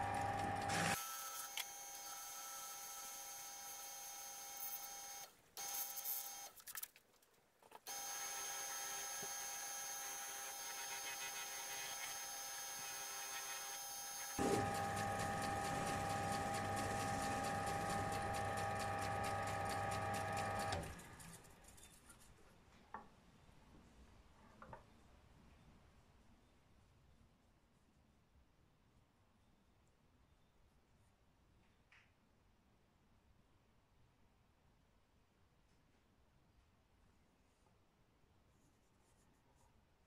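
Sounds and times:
wood lathe motor whining: 0.0s - 5.8s, 7.9s - 21.0s
wood buffed on polishing wheel: 0.0s - 6.4s, 7.9s - 21.5s.

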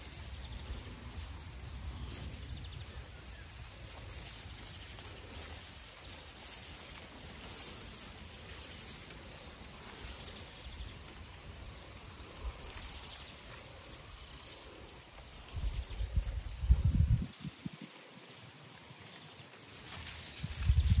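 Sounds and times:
dry grain stalks rustling: 0.0s - 21.0s
wind rumble on microphone: 15.2s - 18.0s, 20.2s - 21.0s.

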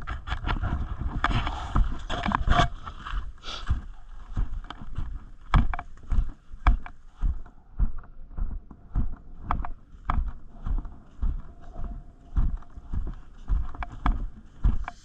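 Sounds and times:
footsteps on grass: 1.4s - 15.0s
heavy breathing: 3.4s - 4.1s.

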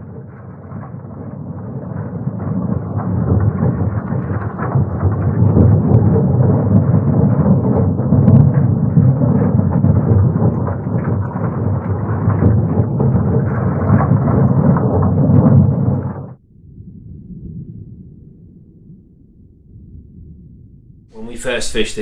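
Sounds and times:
crackles and rattles scraping seabed: 0.0s - 16.4s
underwater dredge rumble: 0.0s - 22.0s.

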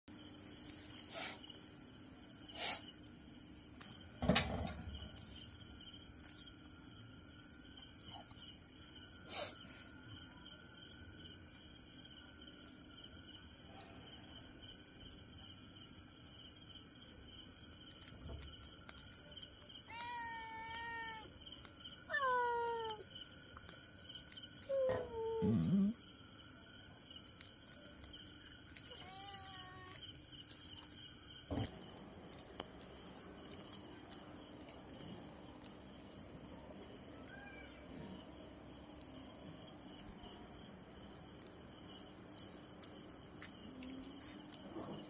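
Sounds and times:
insects chirping: 0.1s - 45.0s
cat meowing: 19.9s - 21.3s, 22.1s - 23.0s, 28.9s - 30.0s, 37.3s - 37.8s.

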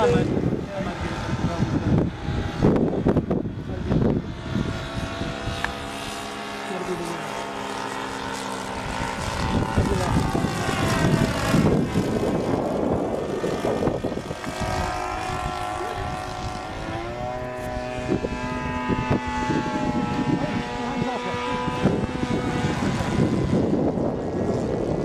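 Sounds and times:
model plane engine and propeller: 0.0s - 25.0s.

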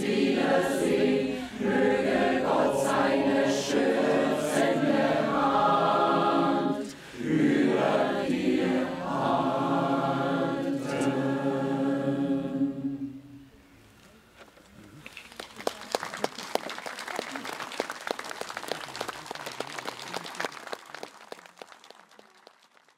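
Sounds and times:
mixed choir singing: 0.0s - 13.5s.

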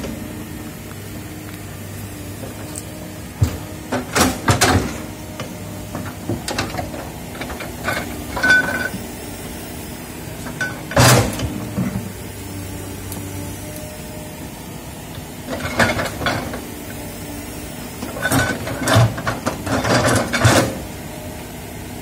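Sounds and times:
diesel engine running: 0.0s - 22.0s
metal clanks and knocks: 3.4s - 9.0s.

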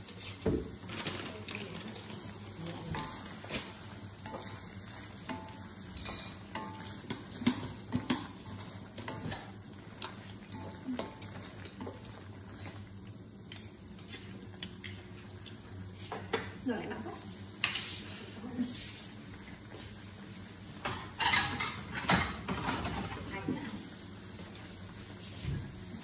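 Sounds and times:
chopsticks knocking and scraping wok: 2.8s - 12.2s.

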